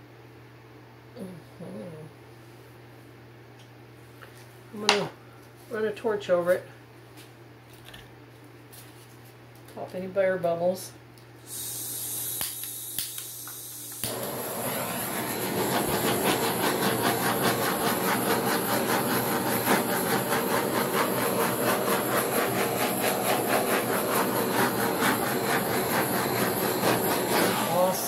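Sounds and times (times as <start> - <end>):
gas torch flame hissing: 11.4 - 28.0.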